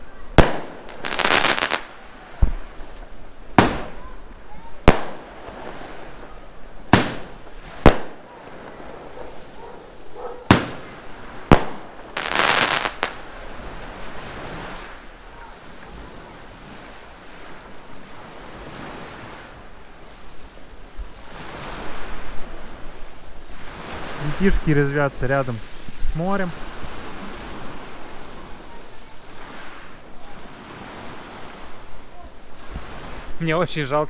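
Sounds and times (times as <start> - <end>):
sea surf: 0.0 - 34.0
firecracker bangs: 0.3 - 4.2, 4.8 - 9.4, 10.5 - 13.2.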